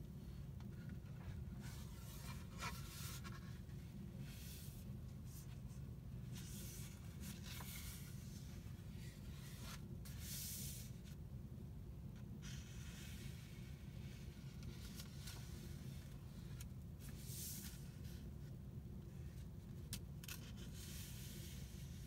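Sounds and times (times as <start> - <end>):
faint low hum: 0.0 - 22.0
paper pages turning: 6.3 - 10.7.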